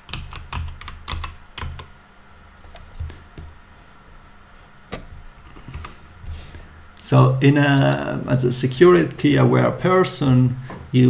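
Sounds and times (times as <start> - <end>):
computer keyboard keystrokes: 0.0 - 1.9.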